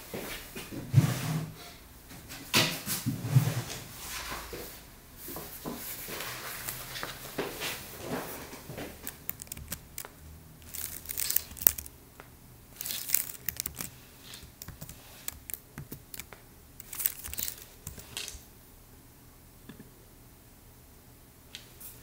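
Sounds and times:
rustling crinkling noise: 4.1s - 18.4s
keyboard keys clicking: 9.0s - 11.9s, 12.8s - 18.0s.

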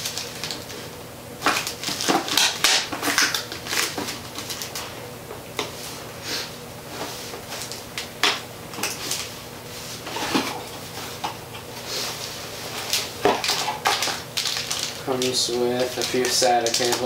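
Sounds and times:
plastic packaging rustling: 0.0s - 4.9s, 12.2s - 17.0s.

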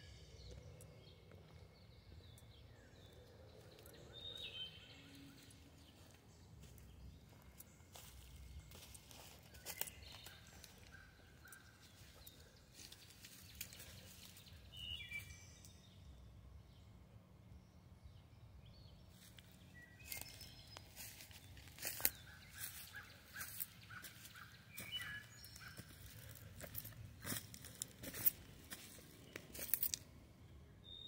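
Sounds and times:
birds chirping: 0.0s - 17.0s, 17.6s - 31.0s
crunching clicks on dry leaves: 8.8s - 14.5s, 20.0s - 30.1s.

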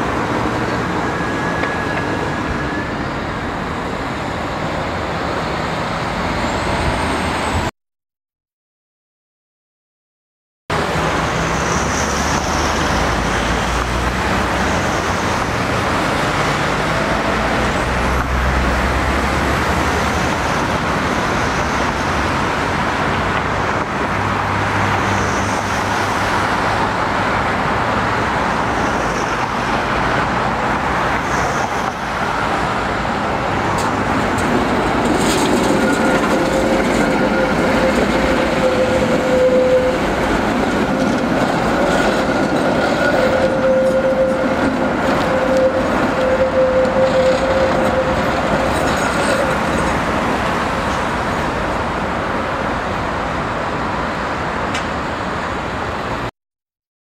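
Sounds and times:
tram wheels rumbling: 0.0s - 7.7s, 10.8s - 56.3s
high squeal of tram wheels: 0.1s - 4.4s, 6.0s - 7.7s, 11.1s - 22.6s, 24.7s - 26.8s, 28.6s - 33.0s, 33.6s - 51.7s.

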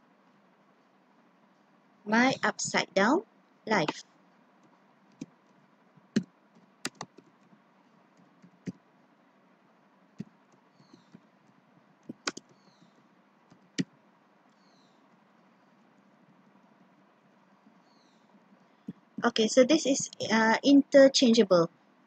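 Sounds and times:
faint steady hiss: 0.0s - 22.0s
computer keyboard key clicks: 6.2s - 7.3s, 12.1s - 12.6s.

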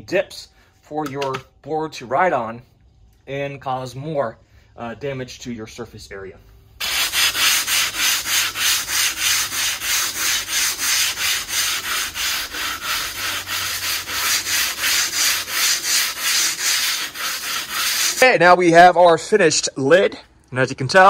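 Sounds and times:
sandpaper scraping brick: 6.8s - 18.3s.

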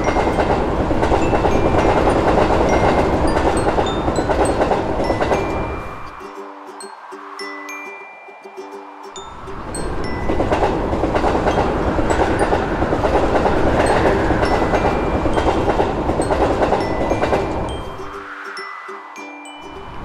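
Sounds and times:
train wheels clicking over rail joints: 0.0s - 6.1s, 9.5s - 18.2s.

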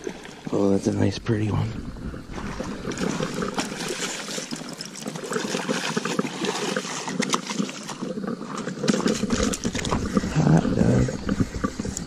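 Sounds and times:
water splashing and trickling: 0.0s - 12.0s.

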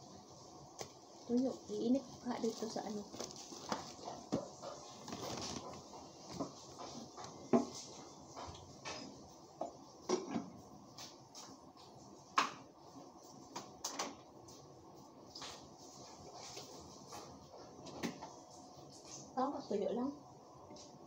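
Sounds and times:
kitchen items knocking and clicking: 3.0s - 11.1s.

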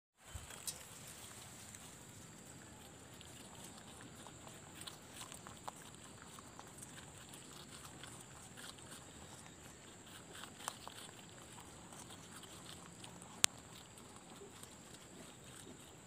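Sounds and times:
leaf rustles: 0.2s - 5.4s
rabbits munching greens: 0.2s - 16.0s.

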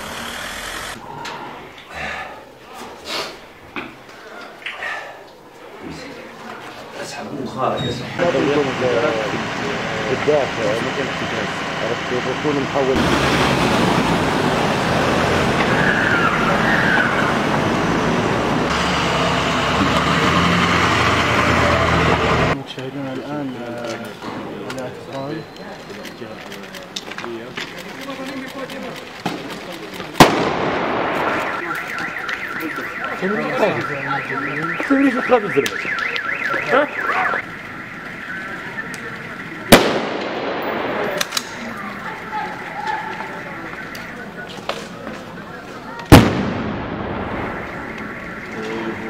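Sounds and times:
voices calling out: 0.0s - 49.0s
vehicles driving past: 7.0s - 49.0s
electronic siren warbling: 31.3s - 39.7s, 47.2s - 49.0s.

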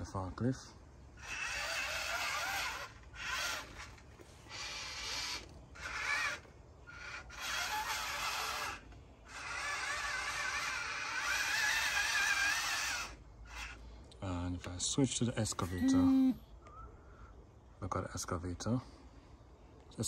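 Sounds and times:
small electric motors whining: 1.1s - 14.1s, 15.4s - 16.4s
gears grinding: 1.2s - 13.8s.

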